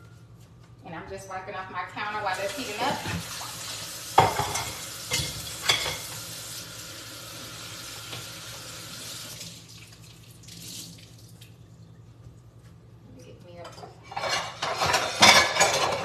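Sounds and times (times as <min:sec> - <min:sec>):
low steady hum: 0:00.0 - 0:06.1, 0:09.4 - 0:16.0
water running from a tap: 0:02.3 - 0:11.6.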